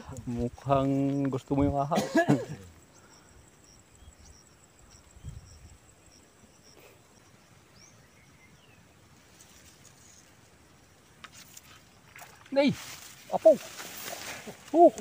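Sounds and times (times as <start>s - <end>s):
insect hum: 0.0s - 15.0s
bird chirps: 2.6s - 10.4s.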